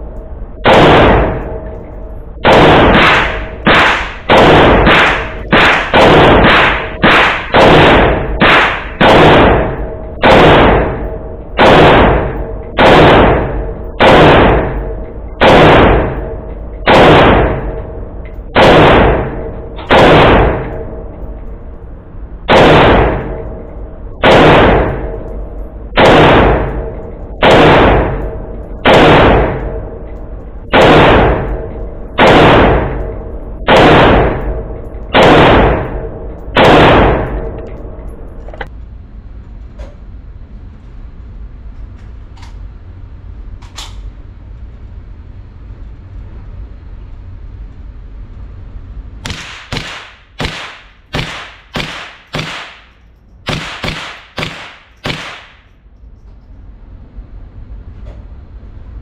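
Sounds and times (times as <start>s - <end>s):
gunshots: 0.6s - 1.6s, 2.4s - 17.8s, 18.5s - 20.8s, 22.4s - 23.4s, 24.2s - 25.2s, 25.9s - 29.8s, 30.6s - 37.5s, 49.2s - 55.7s.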